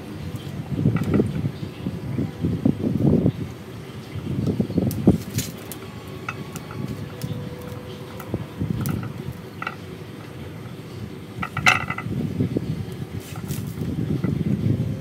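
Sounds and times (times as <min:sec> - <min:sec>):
steady low rumble: 0:00.0 - 0:15.0
ceramic pot clinking: 0:05.2 - 0:12.2.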